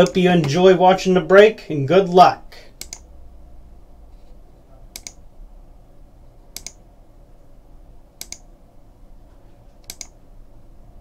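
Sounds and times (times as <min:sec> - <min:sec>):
faint low hum: 0:00.0 - 0:11.0
mouse button clicks: 0:06.6 - 0:06.8.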